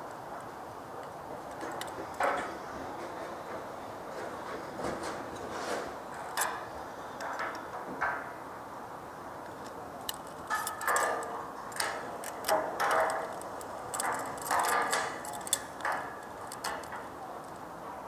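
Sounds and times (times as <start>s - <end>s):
irregular clicks: 9.4s - 17.6s.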